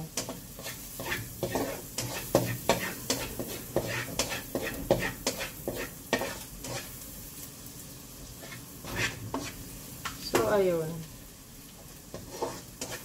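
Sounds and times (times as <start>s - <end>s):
utensil scraping frying pan: 0.0s - 7.1s, 8.3s - 10.6s, 12.0s - 13.0s
garlic sizzling: 0.0s - 13.0s.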